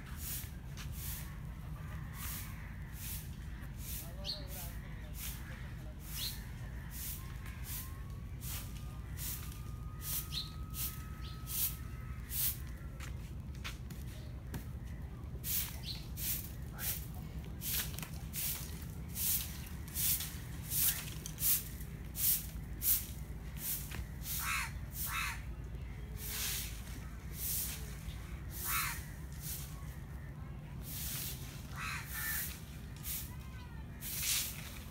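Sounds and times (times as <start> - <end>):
crows cawing: 1.1 - 4.0, 11.5 - 13.2, 24.2 - 25.5, 28.5 - 29.3, 31.6 - 32.7.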